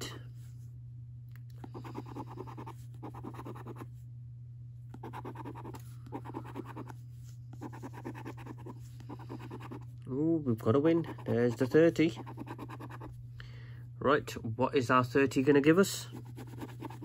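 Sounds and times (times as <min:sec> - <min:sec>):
coin scratching scratchcard: 0:01.8 - 0:03.8, 0:05.0 - 0:06.9, 0:07.6 - 0:09.8, 0:11.0 - 0:13.1, 0:16.2 - 0:17.0.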